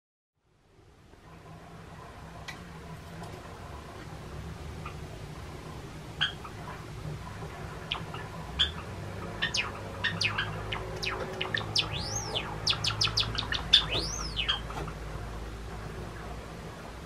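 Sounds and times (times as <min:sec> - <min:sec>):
sparrow singing: 0:06.2 - 0:06.5, 0:07.9 - 0:14.8
whistled bird notes: 0:09.4 - 0:14.7.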